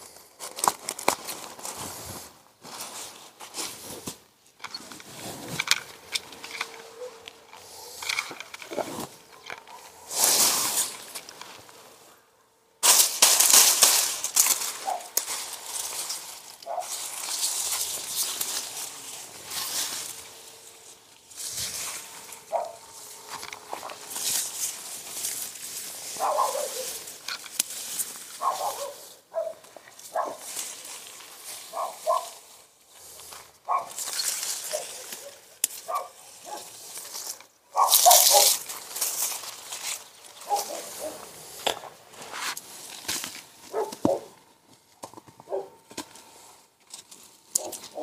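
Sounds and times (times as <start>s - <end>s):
rustling noise: 0.0s - 12.2s, 12.8s - 48.0s
dog barking: 6.9s - 8.0s, 14.8s - 15.2s, 16.6s - 17.0s, 22.4s - 22.9s, 26.2s - 27.0s, 28.4s - 30.5s, 31.7s - 32.4s, 33.7s - 34.0s, 34.7s - 36.7s, 37.7s - 38.6s, 40.4s - 41.3s, 43.7s - 44.4s, 45.4s - 45.8s, 47.6s - 48.0s.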